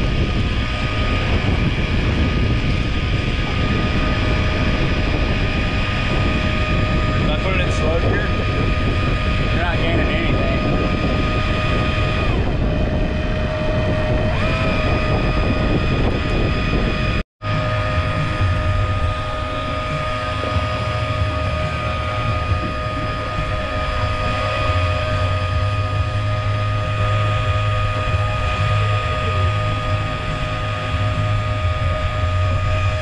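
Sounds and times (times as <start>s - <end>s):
low hum: 0.0s - 33.0s
motor running with steady whine: 0.0s - 33.0s.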